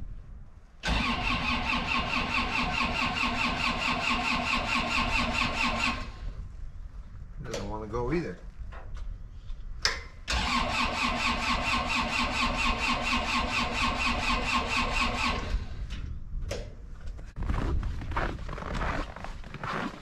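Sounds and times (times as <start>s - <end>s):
engine cranking on starter: 0.8s - 6.2s, 10.3s - 15.9s.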